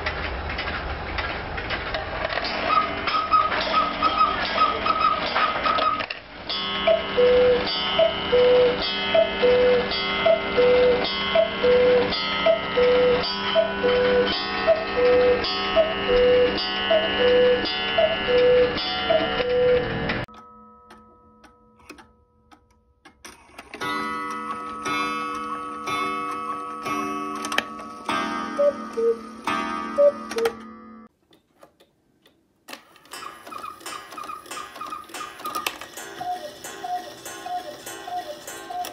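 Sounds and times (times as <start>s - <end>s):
cuckoo clock call: 2.6s - 22.6s, 23.2s - 30.8s, 33.0s - 38.9s
clock clicks: 4.4s - 30.7s, 31.3s - 38.9s
clock ticking: 6.5s - 30.6s, 33.0s - 38.9s
high two-note quail calls: 6.8s - 19.7s.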